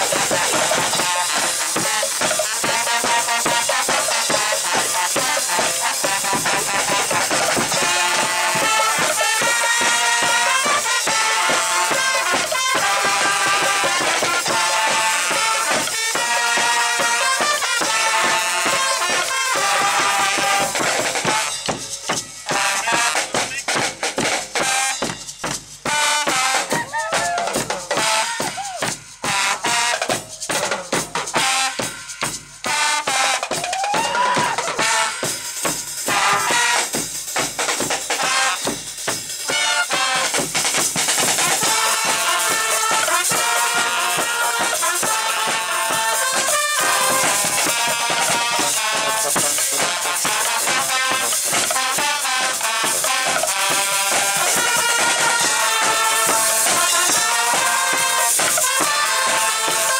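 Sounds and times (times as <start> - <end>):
trombones: 0.0 - 25.2, 25.8 - 33.6, 34.3 - 59.9
drums and cymbals: 0.0 - 59.9
trumpets: 0.0 - 59.9
sousaphone: 26.7 - 28.8.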